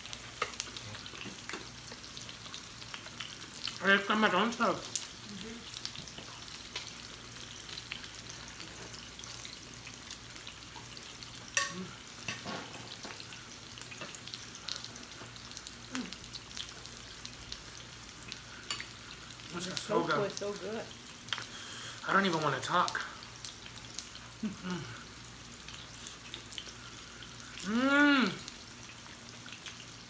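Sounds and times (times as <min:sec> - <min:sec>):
meat sizzling on grill plate: 0:00.0 - 0:30.0
chopsticks clicking on grill and dishes: 0:11.6 - 0:12.4.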